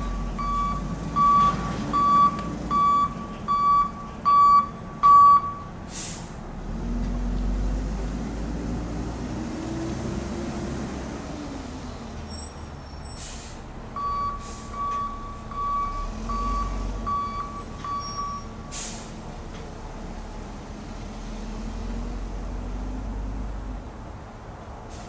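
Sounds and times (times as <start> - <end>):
backup alarm beeping: 0.0 - 5.7, 14.0 - 18.7
air-brake hisses: 5.9 - 6.4, 13.0 - 13.6, 18.7 - 19.2.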